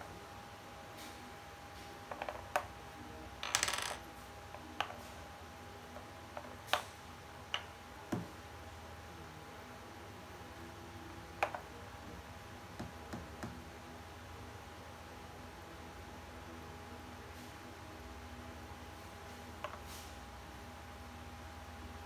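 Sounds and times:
plastic chess pieces clicking: 3.4s - 4.0s
chess pieces rattling together: 3.4s - 4.1s.

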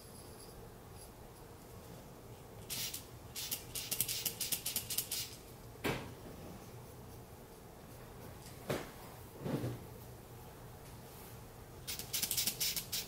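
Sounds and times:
squeeze bulb puffing air: 11.9s - 13.0s.

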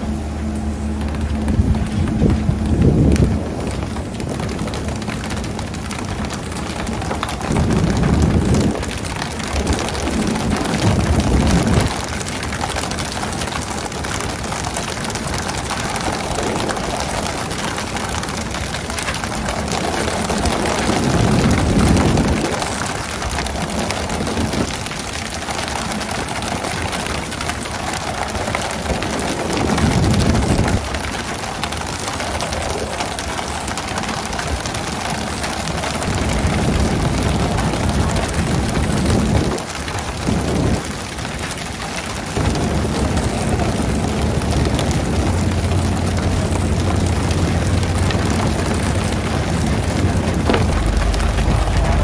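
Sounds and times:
deep rumble: 0.0s - 24.8s, 42.4s - 52.0s
water spray and splashing sea: 0.0s - 52.0s.

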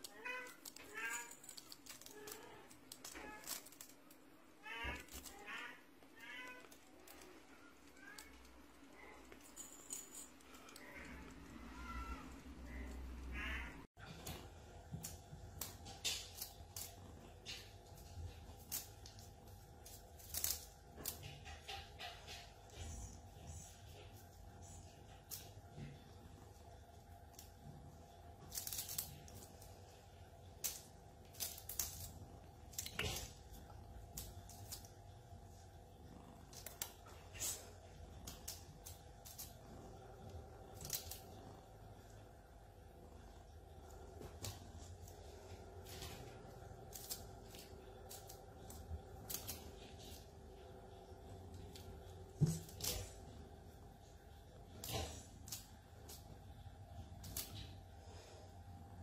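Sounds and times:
wand toy jingling and rattling: 0.0s - 4.2s
faint steady hum: 0.0s - 59.0s
kittens mewing: 10.6s - 13.9s.

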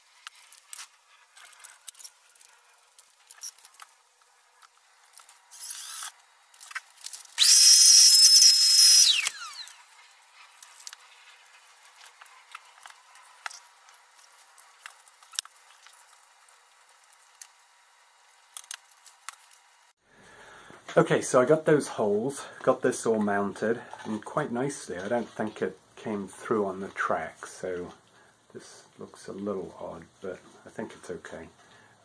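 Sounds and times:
cordless drill whining: 7.4s - 9.8s.

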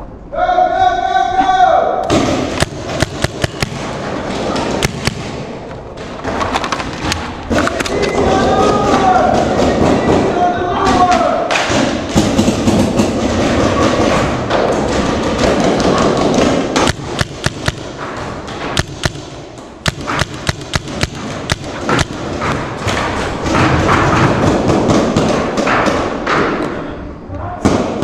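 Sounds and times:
paintball markers firing: 2.1s - 8.1s, 14.9s - 26.0s.

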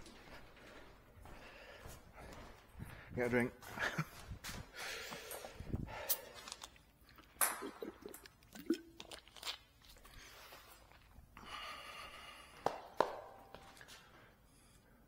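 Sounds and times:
footsteps: 0.0s - 6.7s, 12.6s - 14.3s.

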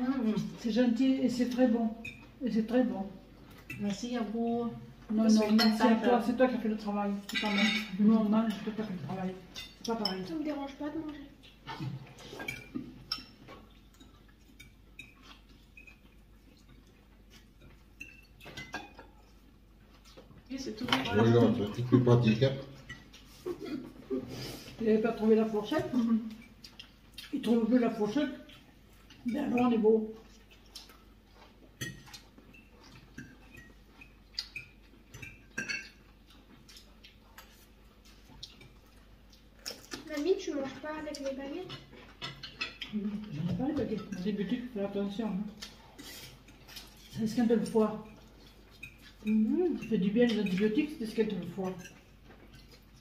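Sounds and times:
cutlery clinking against plates: 7.2s - 8.9s, 11.5s - 19.4s, 22.2s - 23.3s, 31.8s - 38.9s, 41.2s - 44.5s, 45.6s - 52.9s.

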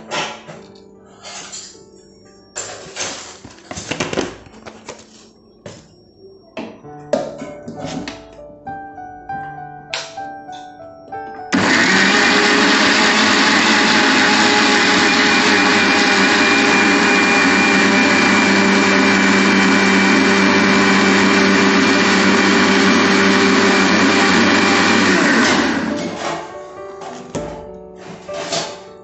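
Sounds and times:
electric mixer grinder running: 11.5s - 26.3s.

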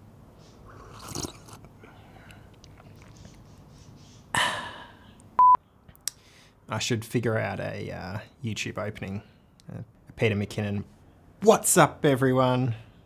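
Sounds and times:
slurping sip from a mug: 0.6s - 1.7s
loud steady beep: 5.4s - 5.6s.

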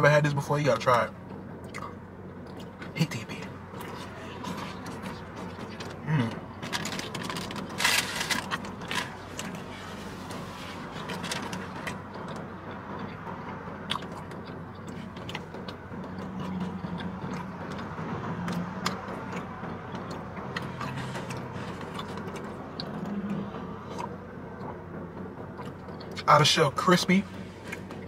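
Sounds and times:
low steady hum: 0.0s - 28.0s
crispy food chewing: 13.9s - 24.8s.

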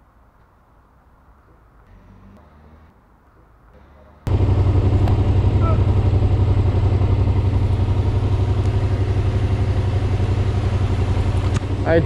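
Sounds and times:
motorcycle engine idling: 4.1s - 12.0s.

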